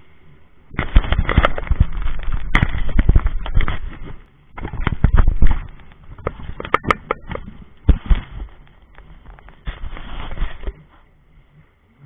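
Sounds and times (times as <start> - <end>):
wind buffeting on microphone: 0.7 - 8.6.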